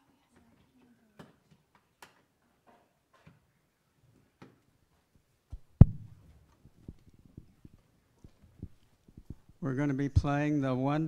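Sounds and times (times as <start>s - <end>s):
microphone handling clicks: 5.5s - 9.6s
tapping and rubbing on microphone: 5.5s - 9.6s
loud thump: 5.8s - 6.2s.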